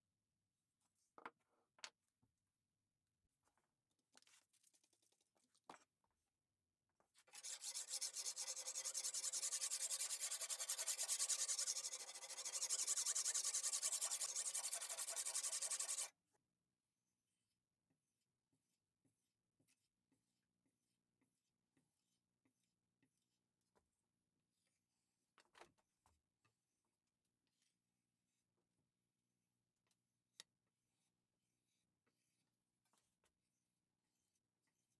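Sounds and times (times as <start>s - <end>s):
sharpening stone scraping blade: 7.4s - 16.1s.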